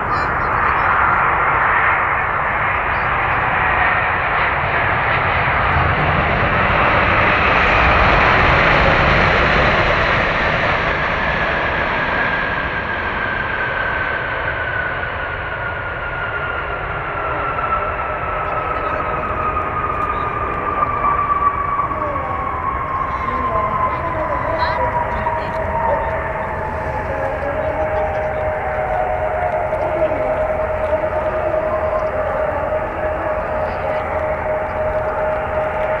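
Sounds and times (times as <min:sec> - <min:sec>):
jet engine reverse thrust roar: 0:00.0 - 0:36.0
engine whine falling in pitch: 0:16.9 - 0:36.0.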